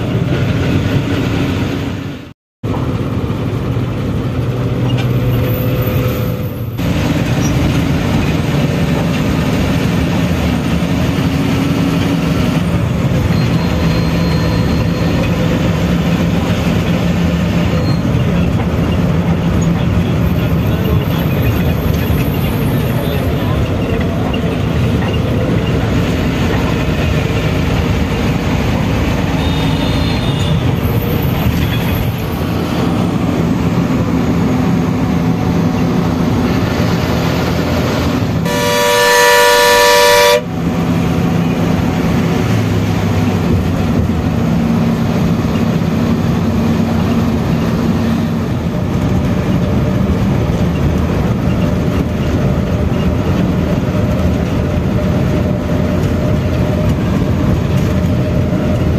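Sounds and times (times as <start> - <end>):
bus engine running: 0.0 - 58.9
road noise: 0.0 - 58.9
bus horn blast: 29.2 - 30.8, 38.4 - 40.7.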